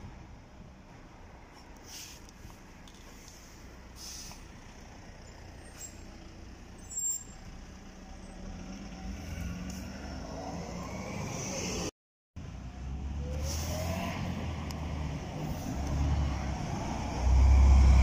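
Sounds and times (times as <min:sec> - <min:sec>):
air brake hiss: 0:01.8 - 0:02.2, 0:03.2 - 0:04.5.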